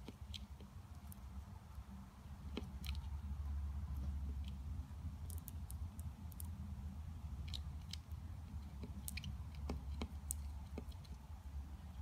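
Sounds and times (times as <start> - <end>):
steady low hum: 0.0 - 12.0
insect chewing clicks: 2.5 - 3.2, 5.2 - 6.5, 7.4 - 11.2.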